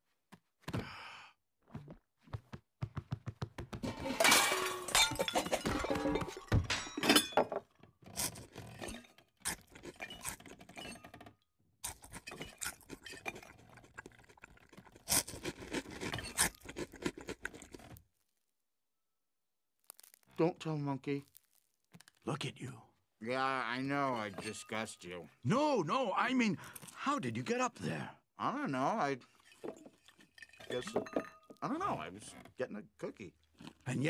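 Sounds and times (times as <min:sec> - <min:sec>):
cartoon thunks and knocks: 0:01.7 - 0:04.0
crockery clinking: 0:03.8 - 0:07.7, 0:23.8 - 0:25.1, 0:29.4 - 0:31.8.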